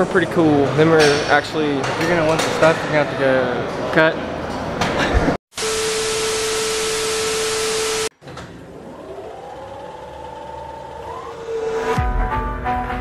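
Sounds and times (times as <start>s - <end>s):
loud noise hiss with steady tone: 5.6s - 8.1s
siren-like rising whine: 5.6s - 8.1s, 8.7s - 12.1s.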